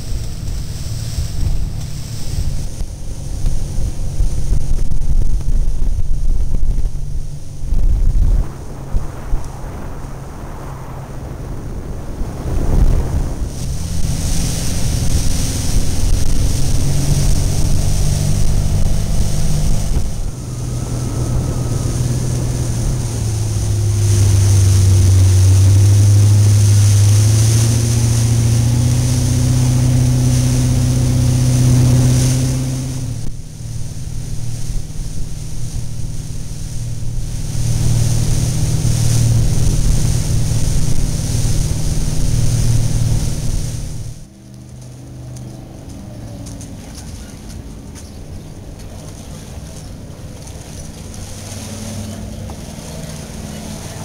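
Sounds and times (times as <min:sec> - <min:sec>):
motorboat engine running: 0:00.0 - 0:54.0
water rushing in wake: 0:00.0 - 0:54.0
wind buffeting microphone: 0:00.0 - 0:54.0.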